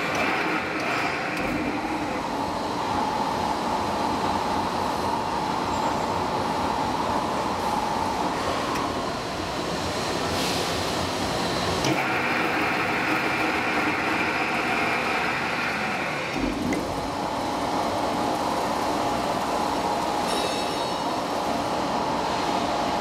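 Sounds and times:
plate rolling machine whine: 11.4s - 23.0s.

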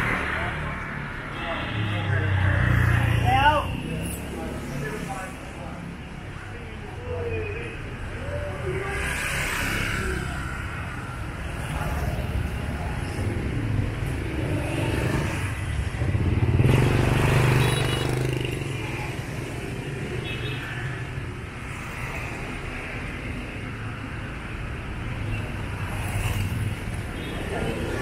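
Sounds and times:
motorbikes and scooters passing: 8.1s - 28.0s.

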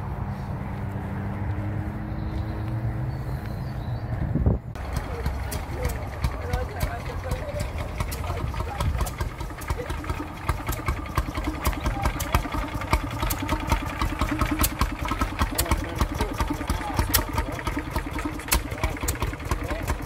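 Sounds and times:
engine idling: 4.8s - 20.0s.

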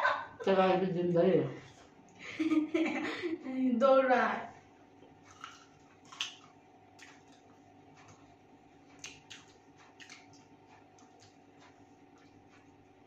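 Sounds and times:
low room hum: 0.0s - 13.0s
chewing clicks and smacks: 5.0s - 13.0s
fingers picking at food on plates: 5.0s - 13.0s.

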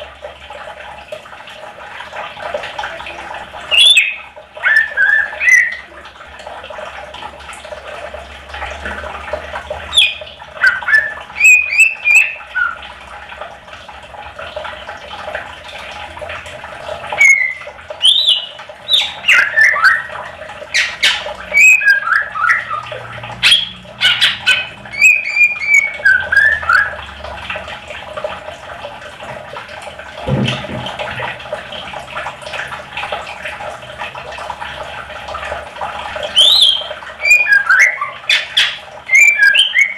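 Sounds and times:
bird singing: 3.7s - 5.8s, 9.9s - 12.8s, 17.2s - 20.1s, 20.7s - 22.8s, 23.4s - 26.9s, 36.3s - 39.9s.

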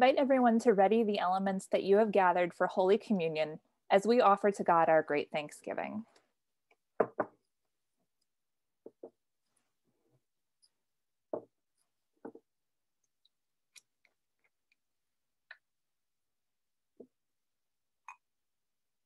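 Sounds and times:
small objects knocking on table: 7.0s - 7.4s, 8.9s - 9.2s.

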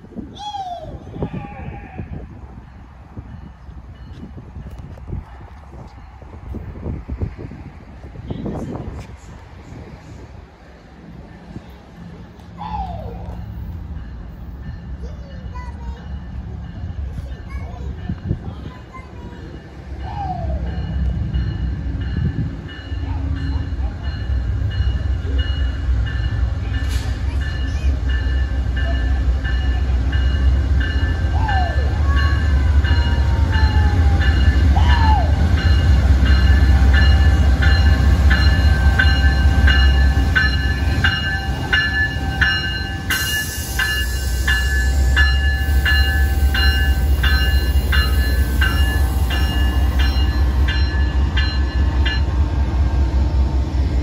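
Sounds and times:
diesel locomotive engine rumble: 0.0s - 54.0s
locomotive bell ringing: 13.2s - 52.6s.

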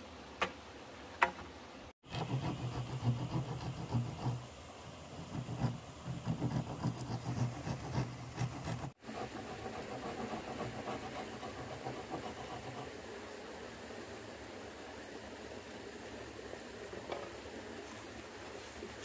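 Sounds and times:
hand saw cutting wood: 2.0s - 4.5s, 5.2s - 12.9s.

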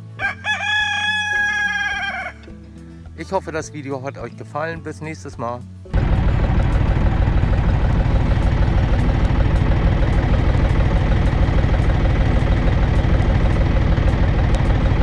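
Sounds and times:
engine idling: 5.9s - 15.0s.

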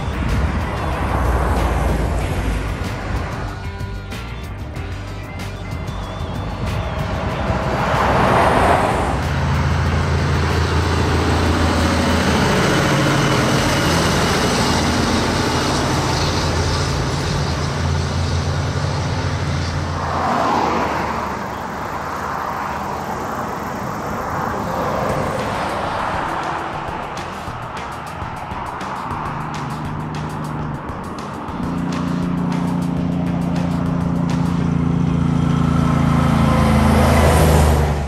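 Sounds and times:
diesel engine droning: 0.0s - 38.0s
light road noise: 0.0s - 38.0s
trucks passing: 0.0s - 38.0s.

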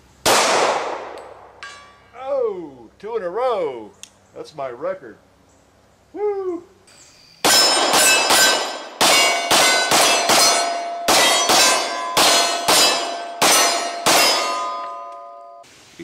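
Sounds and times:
pistol shots: 0.2s - 1.5s, 7.4s - 15.0s
bullet hitting steel plate clang: 0.3s - 2.1s, 7.4s - 15.6s.

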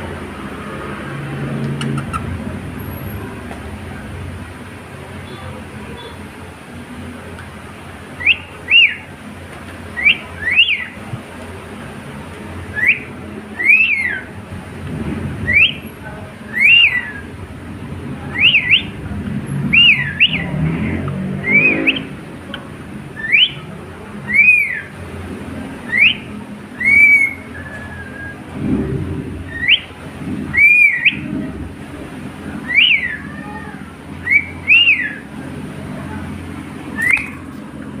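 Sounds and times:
cockatiel whistled chirps: 8.2s - 9.0s, 10.0s - 11.0s, 12.8s - 14.2s, 15.5s - 15.8s, 18.4s - 18.9s, 19.7s - 20.4s, 23.2s - 23.6s, 24.3s - 24.9s, 25.9s - 28.4s, 29.5s - 29.9s, 30.6s - 31.2s, 32.7s - 33.2s, 34.2s - 35.2s, 37.0s - 37.3s.

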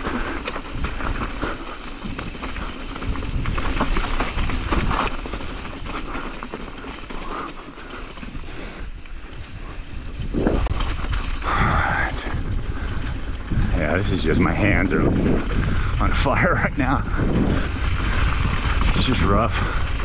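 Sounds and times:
bike tyres crunching over gravel: 0.0s - 20.0s
low rumble: 9.6s - 20.0s.

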